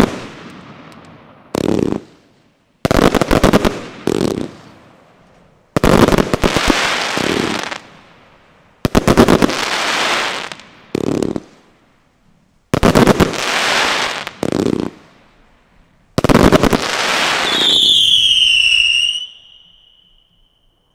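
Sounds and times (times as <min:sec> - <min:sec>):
crackling firework stars: 0:00.0 - 0:20.9
loud high whistling tone: 0:17.4 - 0:20.9.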